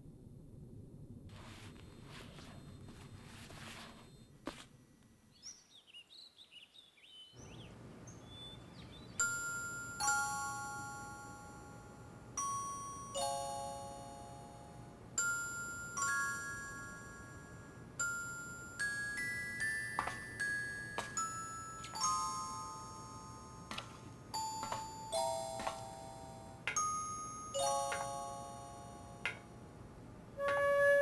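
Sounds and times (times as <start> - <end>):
soft bell-like chime notes: 9.2 - 29.3.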